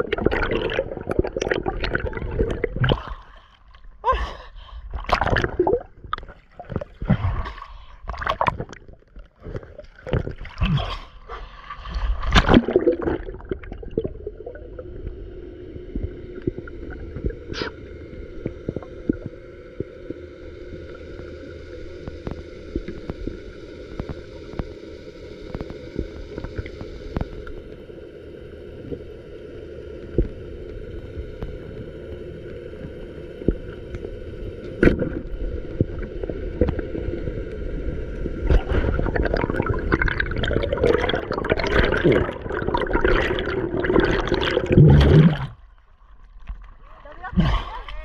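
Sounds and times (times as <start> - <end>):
underwater hum: 0.0 - 48.0
water rushing and splashing: 5.0 - 14.9, 38.2 - 48.0.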